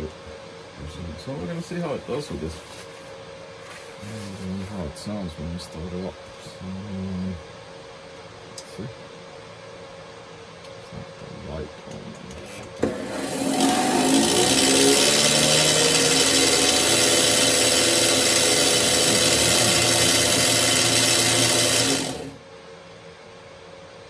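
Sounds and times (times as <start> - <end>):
band saw running: 12.8 - 22.4.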